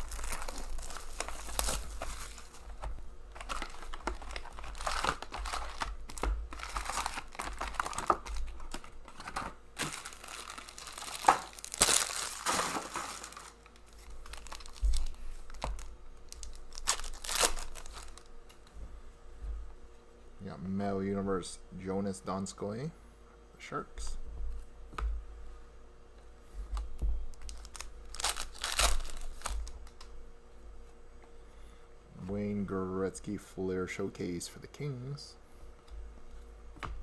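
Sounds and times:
wrappers tearing and crinkling: 0.0 - 18.3, 27.4 - 30.0.

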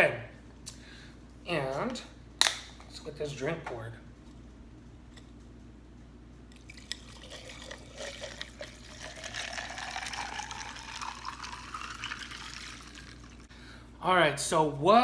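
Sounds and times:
water pouring into jar of ice: 6.6 - 13.5.

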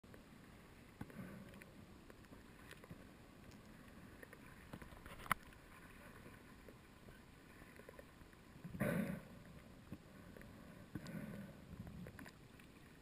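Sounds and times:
muffled underwater ambience: 0.1 - 13.0
small clicks: 1.0 - 5.6.

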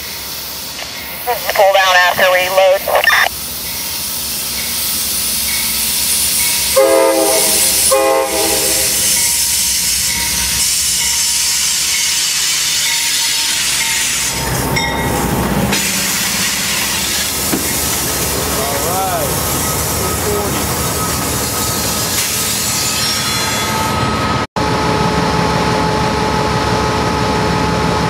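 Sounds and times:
hissing rush of moving train: 0.0 - 28.0
train air horn blasts: 6.7 - 9.1.

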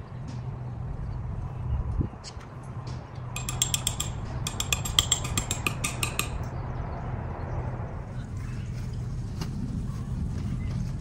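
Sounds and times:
rapid ratcheting clicks: 3.4 - 6.5.

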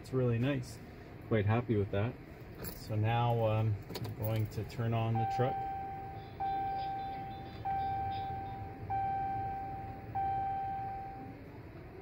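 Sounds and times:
dashboard warning chime: 4.3 - 11.4.

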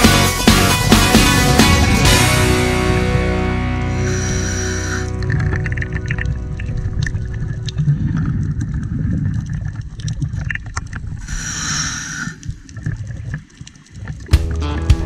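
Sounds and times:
regulator inhalation hiss: 3.8 - 5.2, 11.2 - 12.5
underwater bubbles gurgling: 3.9 - 14.9.

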